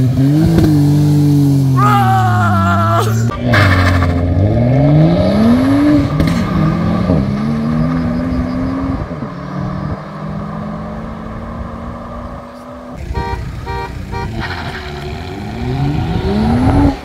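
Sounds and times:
cars accelerating hard: 3.3 - 13.3, 14.1 - 17.0.

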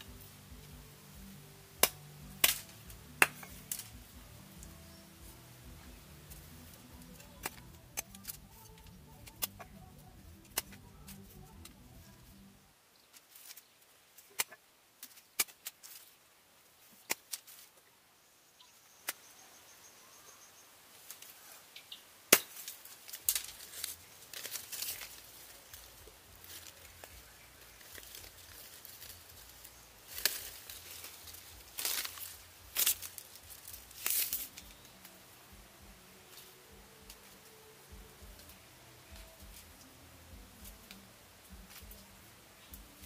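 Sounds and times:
leafy branches crackling: 0.0 - 19.4, 20.6 - 43.0
knife cutting bamboo: 6.2 - 9.8, 22.3 - 27.2.

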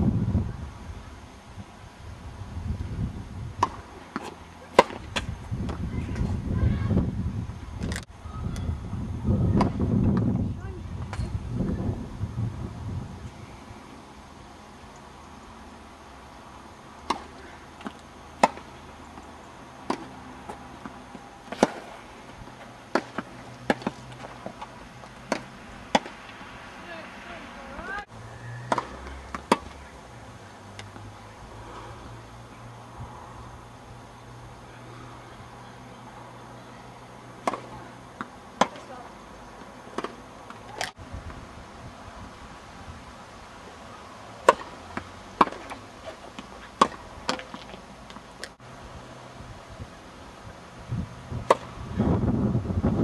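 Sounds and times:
tennis ball bouncing: 3.6 - 5.8, 17.0 - 26.5, 27.7 - 29.8, 37.4 - 39.0, 39.6 - 41.0, 44.4 - 48.6, 51.4 - 51.7
racket hitting tennis ball: 3.6 - 6.3, 17.0 - 29.8, 37.4 - 39.0, 39.6 - 41.0, 44.4 - 48.6, 51.4 - 51.8.

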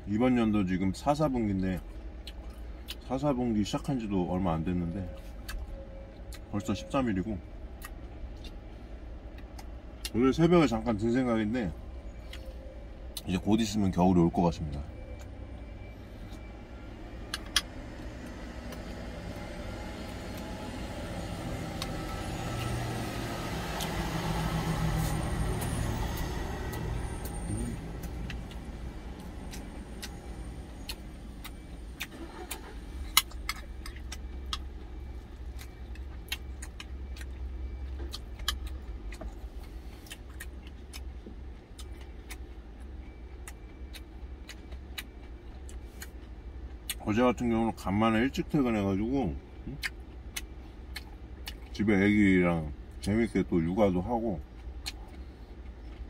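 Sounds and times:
low vehicle rumble: 0.0 - 56.0
chewing: 1.6 - 3.1, 5.0 - 6.6, 7.7 - 10.2, 12.1 - 13.8, 14.7 - 47.1, 49.6 - 51.8, 54.4 - 56.0.

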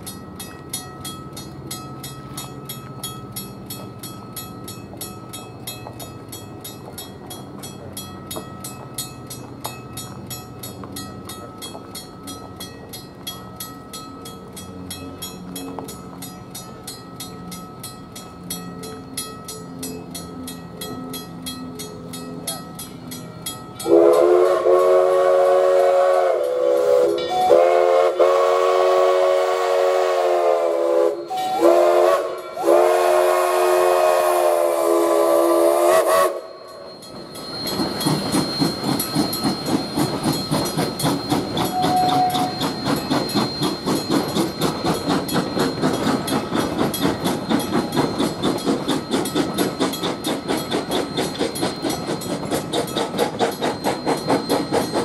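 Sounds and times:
train wheels rhythmic clatter: 0.0 - 55.0
steam locomotive chime whistle: 18.0 - 55.0.

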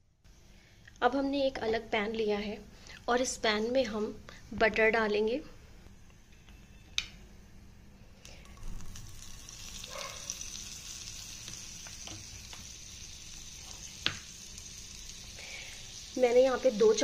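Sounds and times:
butter sizzling in a pan: 8.3 - 17.0.

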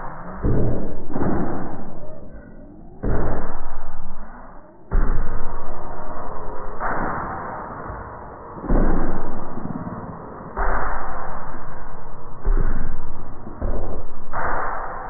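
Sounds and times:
sudden hits: 0.0 - 7.5.

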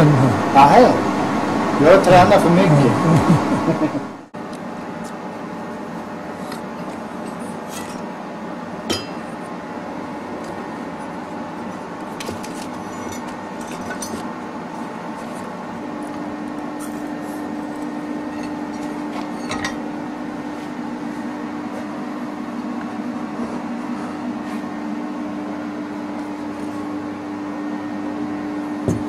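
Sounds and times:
steady tone: 0.0 - 4.3
steady background hum: 0.0 - 29.0.

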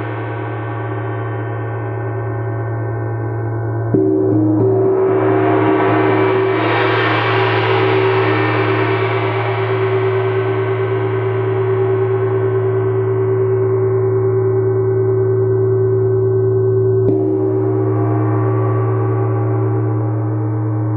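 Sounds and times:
gong ringing: 17.1 - 20.9.

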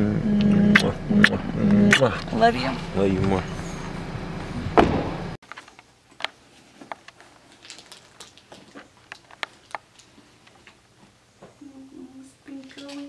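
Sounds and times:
car road noise: 0.0 - 5.4
sharp knock: 4.8 - 5.2.

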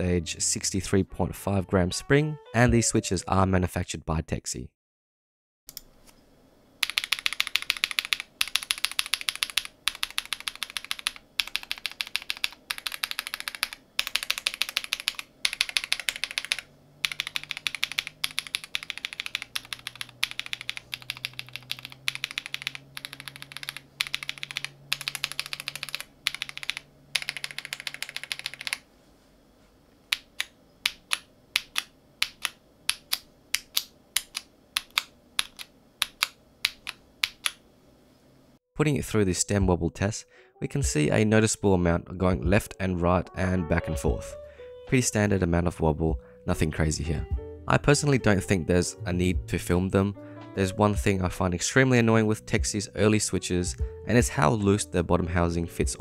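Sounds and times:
mechanical keyboard typing: 6.8 - 28.8, 30.1 - 37.6.

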